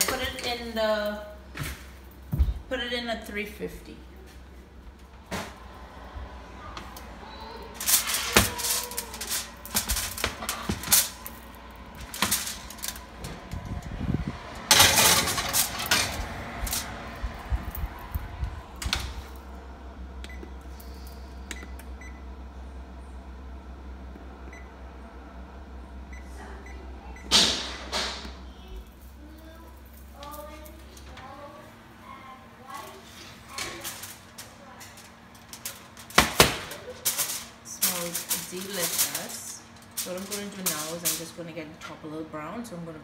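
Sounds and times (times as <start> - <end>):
oven humming: 0.0 - 43.0
oven door: 6.6 - 19.3, 32.7 - 41.4.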